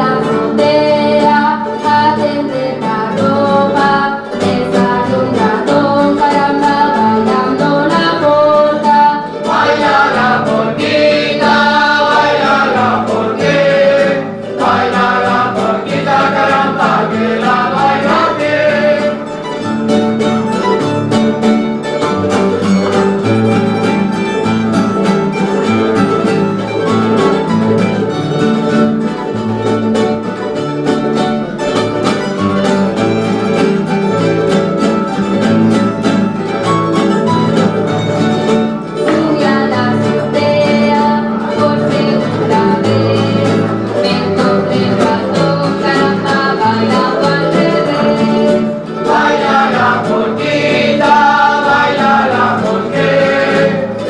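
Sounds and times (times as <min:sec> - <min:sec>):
people singing: 0:00.0 - 0:19.8, 0:39.0 - 0:54.0
plucked string ensemble playing: 0:00.0 - 0:54.0.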